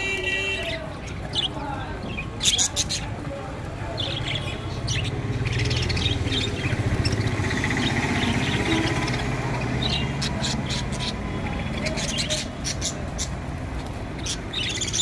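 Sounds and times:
budgerigars chattering: 3.9 - 15.0.

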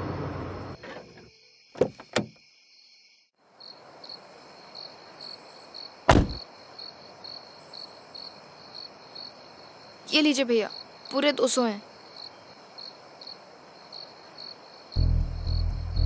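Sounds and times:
crickets chirping: 0.3 - 16.0
car door clicks: 1.8 - 2.3, 6.1 - 6.4
car door slamming: 6.1 - 6.4.

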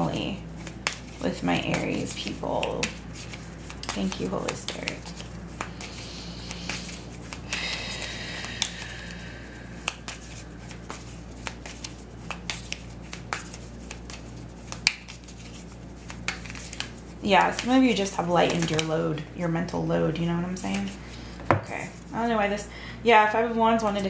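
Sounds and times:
steady low hum: 0.0 - 24.0
cards shuffling: 0.2 - 18.9, 20.6 - 21.0.

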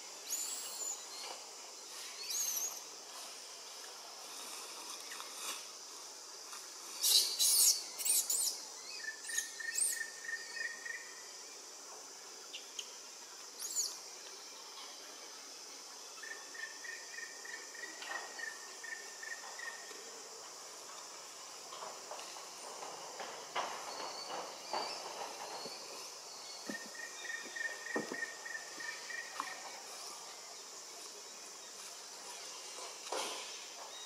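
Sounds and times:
insects chirring: 0.0 - 34.0
high arching chirps: 7.0 - 11.1.

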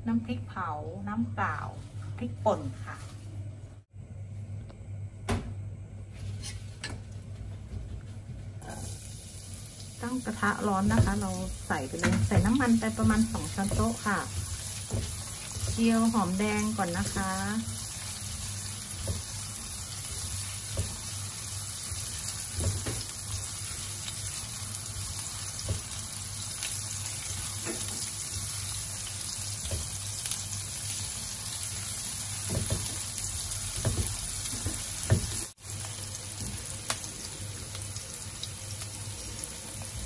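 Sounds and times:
spatula scraping a wok: 6.2 - 6.9
shallots sizzling in oil: 8.6 - 40.0.

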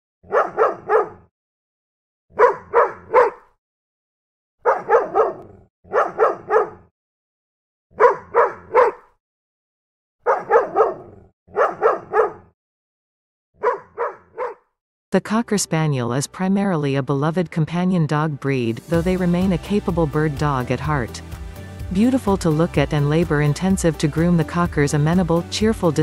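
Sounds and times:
dog barking: 0.2 - 1.3, 2.3 - 3.6, 4.6 - 6.9, 7.9 - 9.2, 10.2 - 12.5, 13.6 - 14.7.

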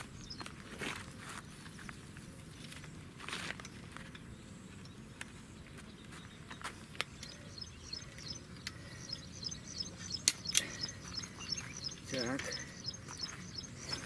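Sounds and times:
rapid high chirping: 7.1 - 14.0.

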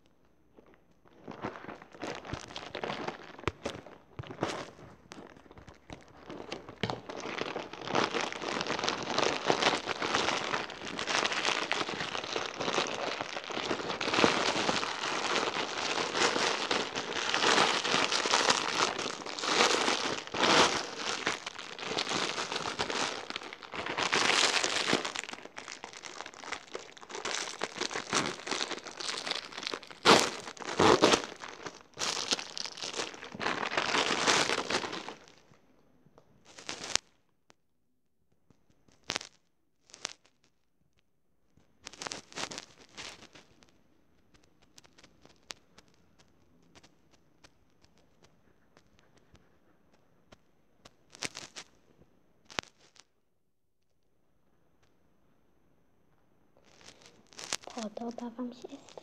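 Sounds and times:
plastic packaging crinkling: 0.5 - 35.5, 56.6 - 59.0.

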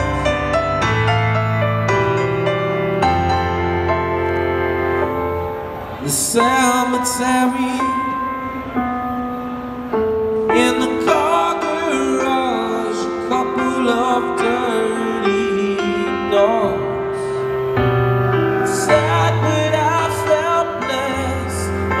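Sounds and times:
keyboard chords: 0.0 - 22.0
man singing: 6.0 - 8.5, 10.4 - 17.5, 18.5 - 22.0.

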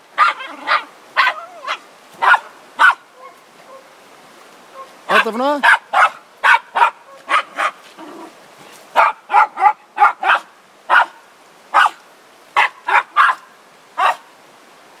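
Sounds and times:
dog barking: 0.2 - 3.8, 4.8 - 7.8, 8.9 - 12.0, 12.6 - 14.3.

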